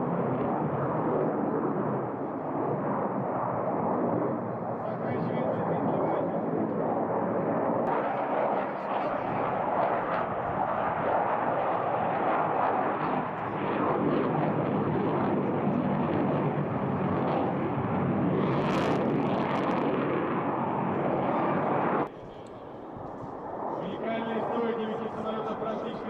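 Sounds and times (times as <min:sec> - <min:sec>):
fighter jet engine roar: 0:00.0 - 0:26.0.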